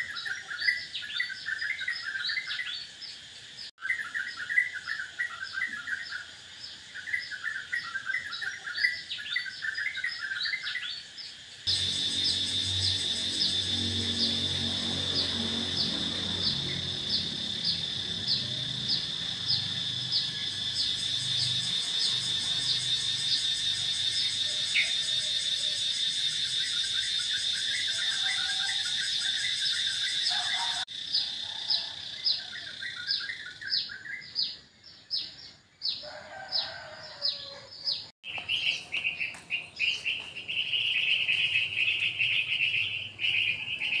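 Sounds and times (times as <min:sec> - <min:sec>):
birds chirping: 0:00.0 - 0:44.0
pulsing high buzz: 0:11.7 - 0:24.4
steady high buzz: 0:11.7 - 0:24.4.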